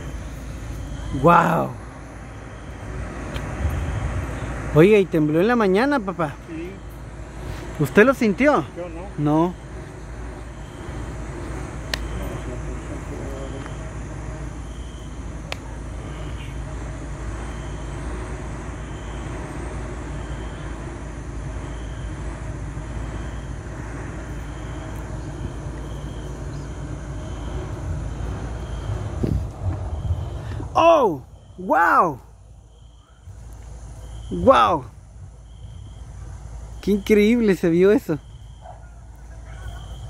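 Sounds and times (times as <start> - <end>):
low rumble: 20.7 - 31.6.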